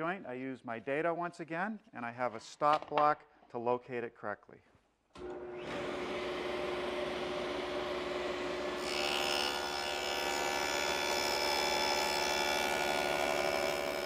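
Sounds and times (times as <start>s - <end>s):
power saw cutting plywood: 5.2s - 14.0s.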